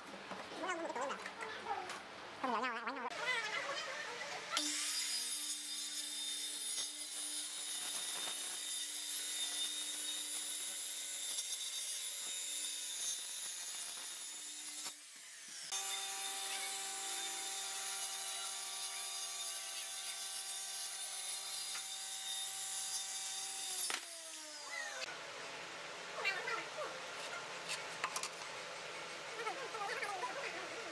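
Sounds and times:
power tool cutting wood: 4.5 - 25.1
circular saw cutting wood: 4.6 - 25.1.

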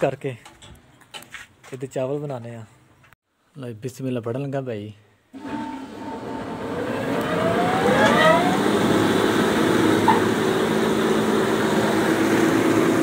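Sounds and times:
huller motor whine and drone: 5.4 - 13.0.

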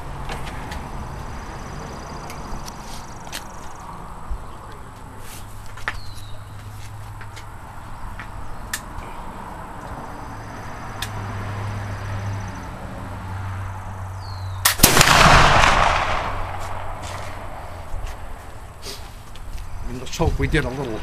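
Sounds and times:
rifle shot ringing: 14.6 - 17.6.

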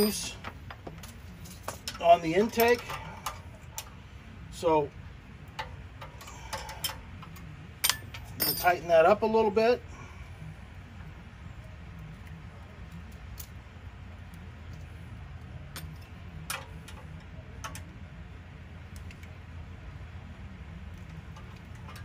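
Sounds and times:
light metal clicks and clinks: 0.0 - 3.9, 5.5 - 8.8
steady low hum: 0.0 - 22.0.

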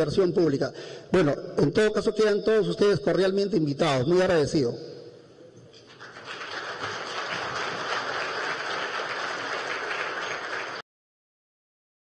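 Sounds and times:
audience applauding: 5.9 - 10.8.

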